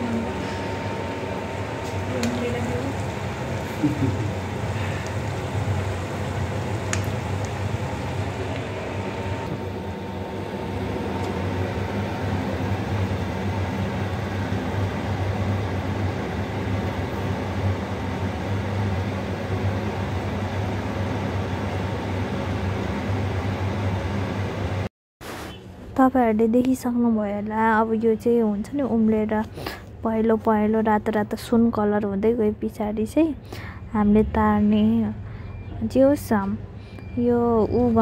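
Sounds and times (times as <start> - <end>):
ghee simmering hiss: 0.0 - 9.5
low mechanical hum: 0.0 - 38.0.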